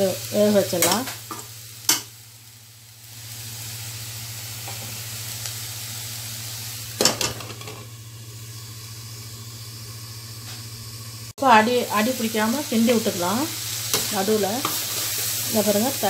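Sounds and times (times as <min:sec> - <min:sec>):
vegetables sizzling in a pan: 0:00.0 - 0:16.0
spatula stirring in pan: 0:13.8 - 0:15.8.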